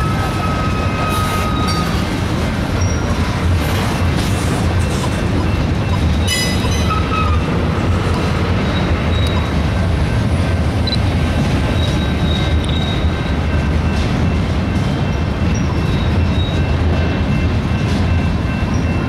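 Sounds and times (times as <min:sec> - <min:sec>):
high-pitched wheel squeal: 0:00.0 - 0:02.1, 0:08.6 - 0:09.5
steel wheels rumbling on rail: 0:00.0 - 0:19.0.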